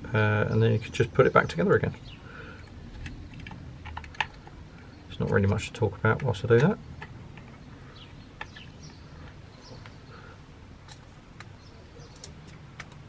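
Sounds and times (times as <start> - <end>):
light clicks of small parts: 10.8 - 13.0.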